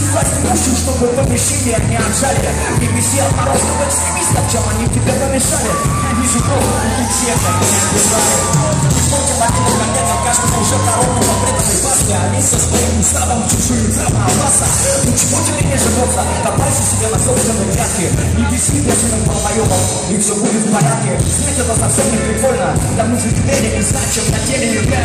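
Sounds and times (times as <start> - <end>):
live rock band: 0.0 - 25.0
pounding bass guitar: 0.0 - 25.0.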